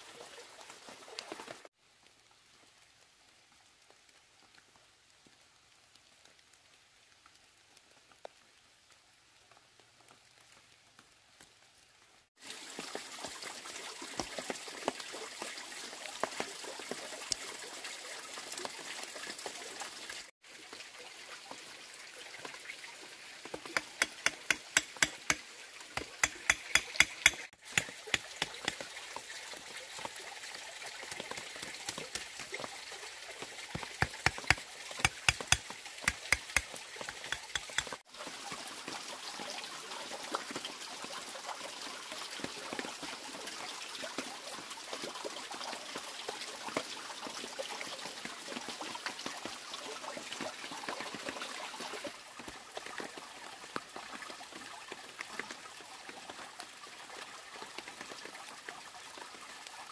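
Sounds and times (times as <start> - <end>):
water trickling: 12.4 - 39.6
sharp knocks of bamboo slats: 23.8 - 25.4.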